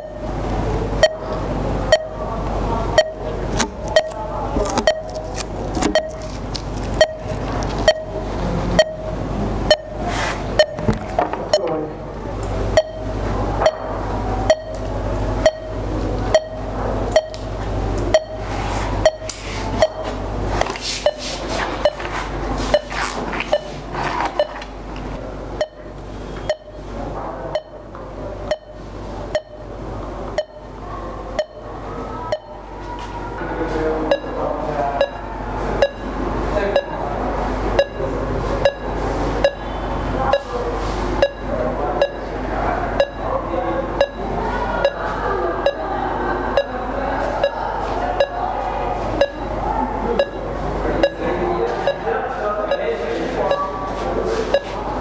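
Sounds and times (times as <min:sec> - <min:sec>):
low constant hum: 0:00.0 - 0:55.0
short electronic beeps with click: 0:01.0 - 0:01.3, 0:01.9 - 0:02.2, 0:03.0 - 0:08.2, 0:08.8 - 0:09.1, 0:09.7 - 0:10.9, 0:12.8 - 0:13.9, 0:14.5 - 0:17.5, 0:18.1 - 0:20.2, 0:21.0 - 0:21.2, 0:21.8 - 0:22.1, 0:22.7 - 0:23.8, 0:24.4 - 0:24.7, 0:25.6 - 0:26.9, 0:27.5 - 0:27.8, 0:28.5 - 0:29.6, 0:30.4 - 0:30.7, 0:34.1 - 0:34.4, 0:35.0 - 0:35.2, 0:35.8 - 0:36.1, 0:37.8 - 0:38.0, 0:38.6 - 0:40.5, 0:41.2 - 0:42.3, 0:43.0 - 0:43.3, 0:44.0 - 0:44.2, 0:49.2 - 0:49.6, 0:50.2 - 0:50.4, 0:53.5 - 0:54.8.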